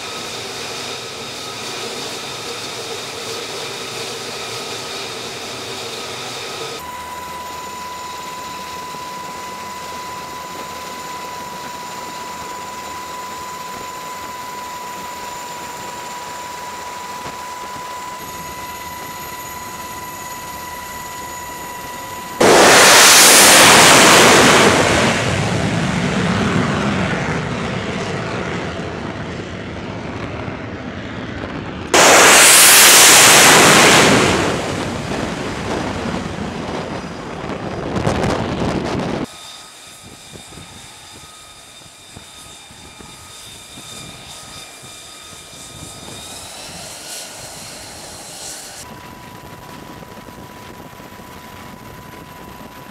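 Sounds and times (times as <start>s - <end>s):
jet engine whine: 0.0s - 52.9s
full-power jet blast: 15.2s - 39.3s.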